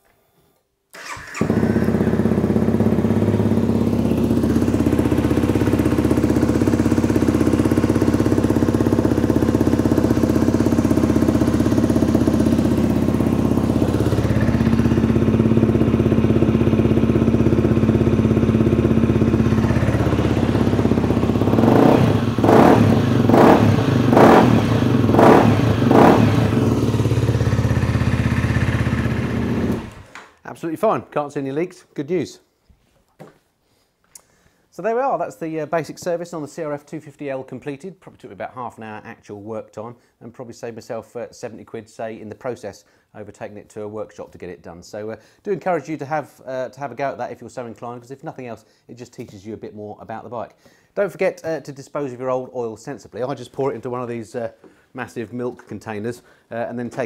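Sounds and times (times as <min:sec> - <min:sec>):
motorcycle engine idling: 0:01.0 - 0:30.1.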